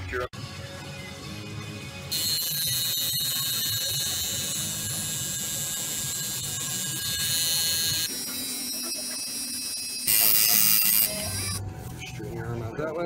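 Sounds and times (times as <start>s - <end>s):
tattoo machine buzzing: 2.1s - 11.6s.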